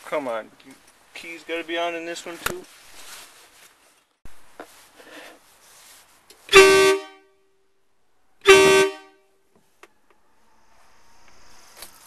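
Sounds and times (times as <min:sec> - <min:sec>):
truck horn blasts: 0:06.5 - 0:07.5, 0:08.4 - 0:09.3.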